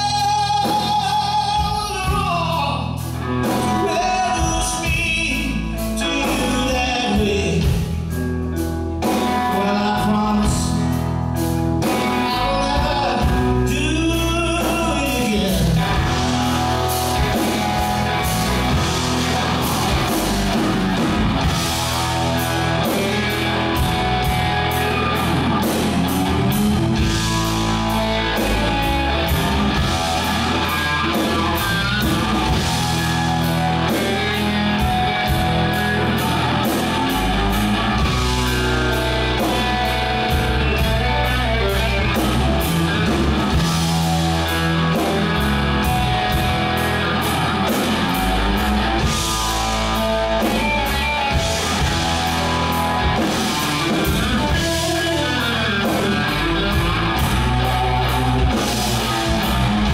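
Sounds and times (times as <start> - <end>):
man singing: 0.0 - 8.2, 9.0 - 11.1, 11.8 - 16.3
country-rock band playing: 0.0 - 59.9
electric guitar solo: 15.2 - 59.9.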